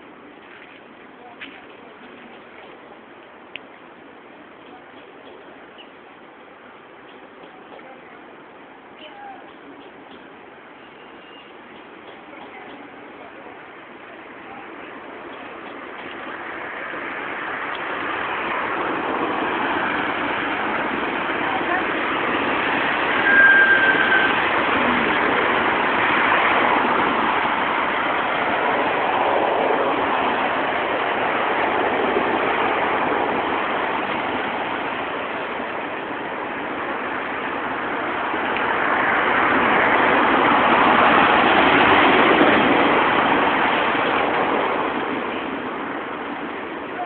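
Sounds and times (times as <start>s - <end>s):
cars driving past: 15.2s - 46.8s
short high-pitched tone: 23.2s - 24.4s.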